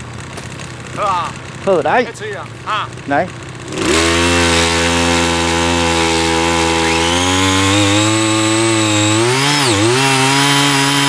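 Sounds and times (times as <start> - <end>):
small engine running: 0.0 - 11.0
tines digging soil: 0.0 - 11.0.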